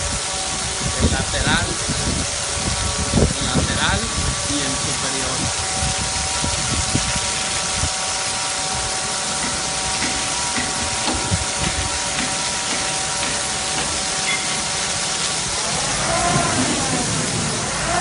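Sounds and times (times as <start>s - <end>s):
pump machinery whine: 0.0s - 18.0s
water jetting hiss: 0.0s - 18.0s.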